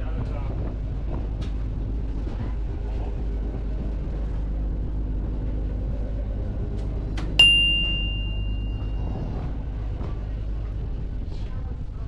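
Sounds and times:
ferry engine rumble: 0.0s - 12.0s
metallic ding: 7.4s - 9.0s.

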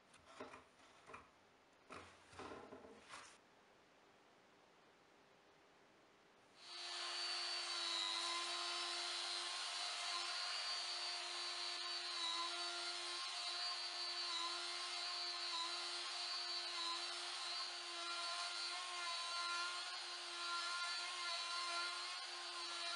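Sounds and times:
trim router cutting wood: 6.6s - 22.9s.

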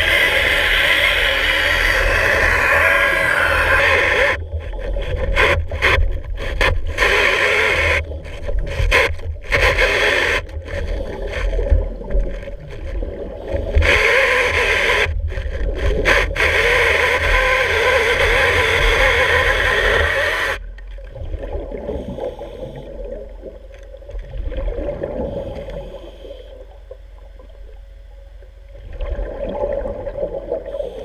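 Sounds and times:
underwater chainsaw cutting wood: 0.0s - 20.8s.

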